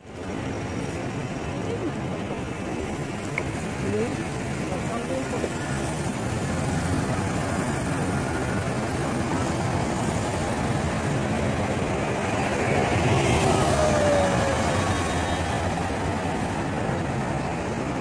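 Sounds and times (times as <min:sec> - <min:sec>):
passing cars and motorcycles: 0:00.0 - 0:18.0
bus driving past whining: 0:05.9 - 0:18.0.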